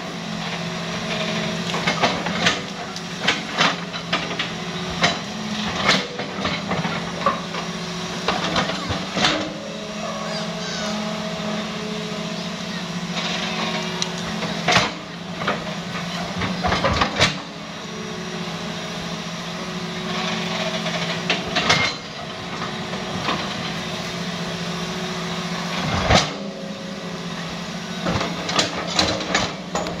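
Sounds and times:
excavator diesel engine running: 0:00.0 - 0:30.0
excavator bucket knocks and clanks: 0:28.0 - 0:30.0.

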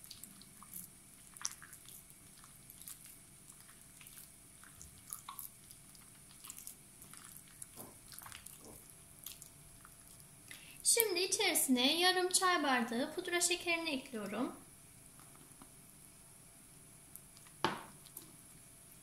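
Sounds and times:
hand squelching butter and eggs: 0:00.0 - 0:11.2.

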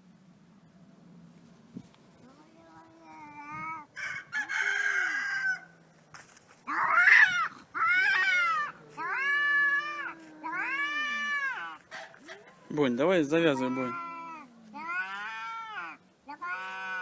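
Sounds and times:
cats yowling: 0:06.7 - 0:12.6, 0:13.4 - 0:17.0
low steady moan: 0:08.4 - 0:12.7, 0:13.6 - 0:17.0.

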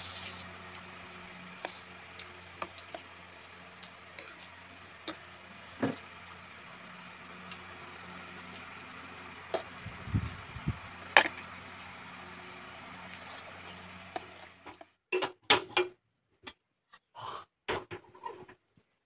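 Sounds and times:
steady low hum: 0:00.0 - 0:14.7.

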